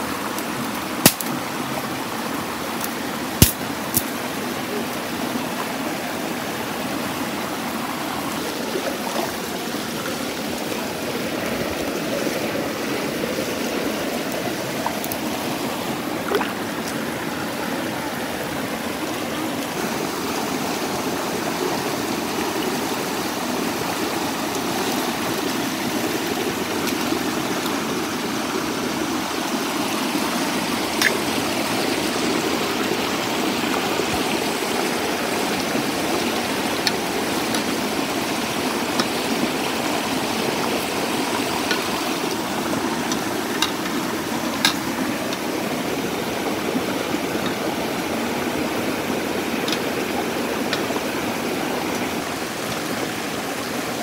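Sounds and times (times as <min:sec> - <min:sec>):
water rushing over rocks: 0:00.0 - 0:54.0.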